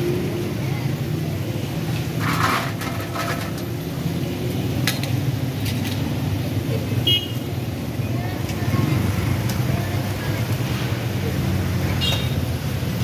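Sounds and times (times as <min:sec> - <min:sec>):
chips clattering onto metal tray: 0:02.2 - 0:03.7.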